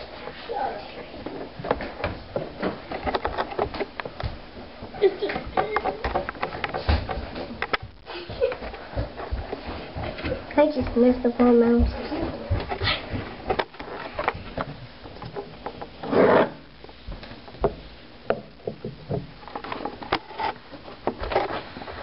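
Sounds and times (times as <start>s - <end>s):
handling knocks and clicks: 1.2s - 10.5s.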